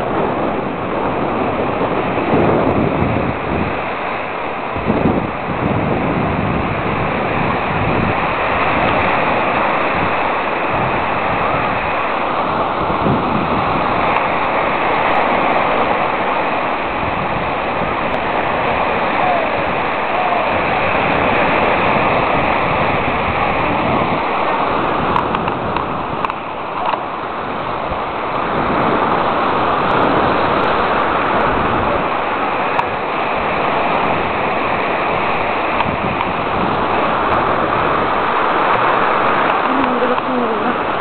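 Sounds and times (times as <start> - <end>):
sea surf breaking on shore: 0.0 - 41.0.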